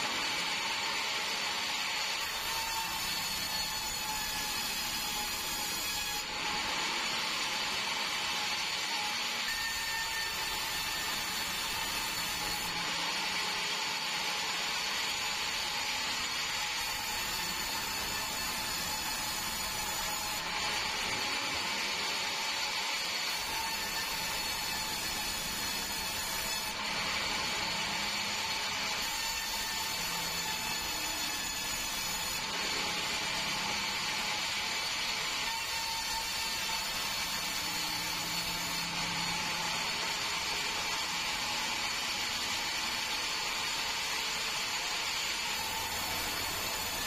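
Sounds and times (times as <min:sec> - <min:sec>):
band saw running: 0:00.0 - 0:47.0.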